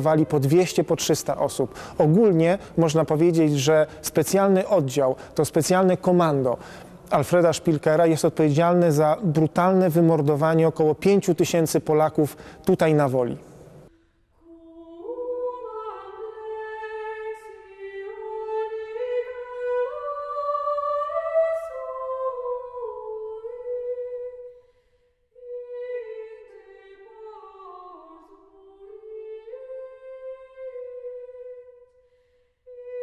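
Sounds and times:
woman singing wordlessly: 0:14.4 - 0:24.6, 0:25.4 - 0:31.9.

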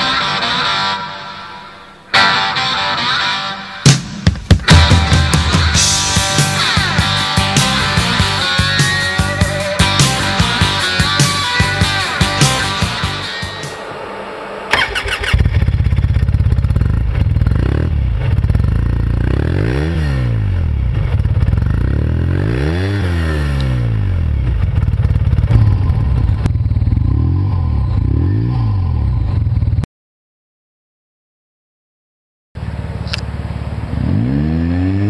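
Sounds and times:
engine throttle blips: 0:04.6 - 0:22.8, 0:23.5 - 0:29.8
engine idling: 0:04.8 - 0:19.4, 0:24.1 - 0:28.2, 0:32.6 - 0:34.0
engine cranking and catching: 0:05.7 - 0:19.4.

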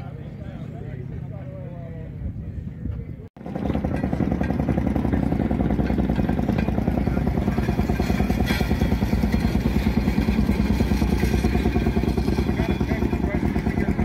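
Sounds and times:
rail speeder engine running: 0:03.4 - 0:14.0.

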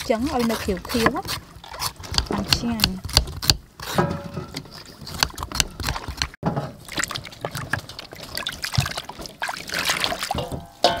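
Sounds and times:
knife scraping gourd skin: 0:00.0 - 0:06.3
vegetables sloshing in water: 0:06.7 - 0:11.0.

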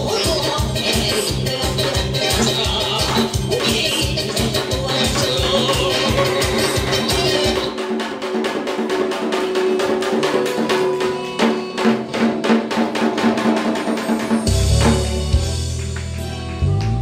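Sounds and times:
deep bass backing track: 0:00.0 - 0:07.7, 0:14.5 - 0:17.0
drum beaten with wooden sticks: 0:00.0 - 0:16.3.

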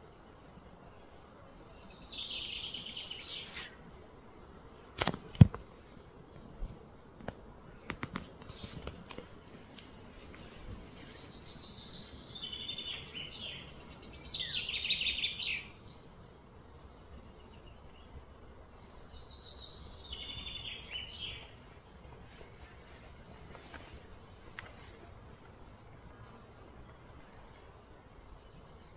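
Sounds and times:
outdoor background noise: 0:00.0 - 0:28.9
songbird trilling: 0:11.6 - 0:15.8.

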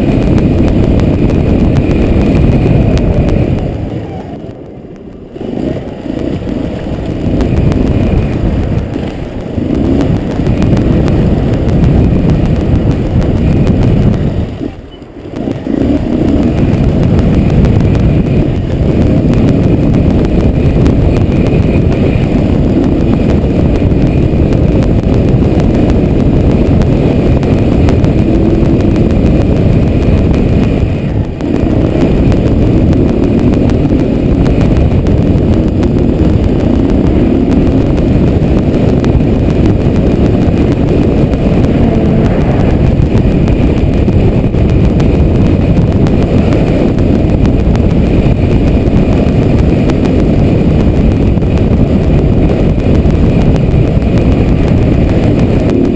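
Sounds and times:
low wind rumble: 0:00.0 - 0:55.9
motorcycle engine running: 0:00.0 - 0:55.9.

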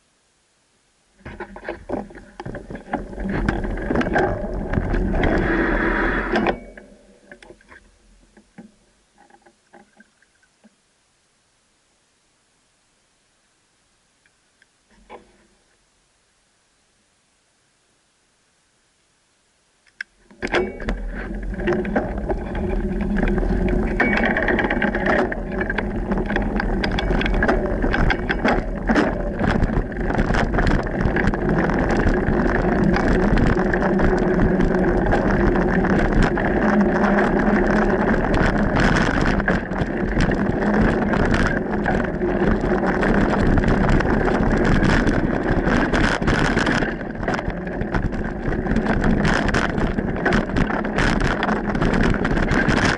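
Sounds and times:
mountain bike tyre and trail noise: 0:01.1 - 0:10.2, 0:20.0 - 0:52.9
bike clicks and rattles over bumps: 0:01.2 - 0:10.8, 0:19.9 - 0:52.9.

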